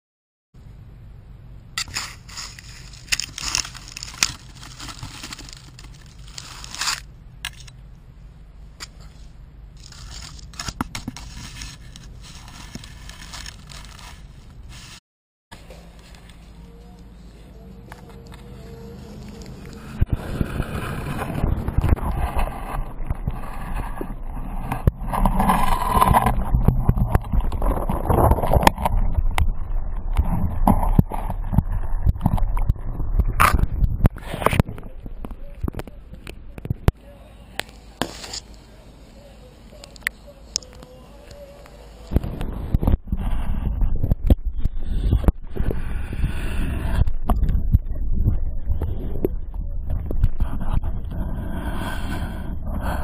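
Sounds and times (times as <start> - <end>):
sticks and leaves rustling: 1.8 - 7.7, 9.8 - 15.0, 15.6 - 24.0, 37.6 - 42.2
muffled underwater rumbling: 18.5 - 36.9, 38.6 - 53.0.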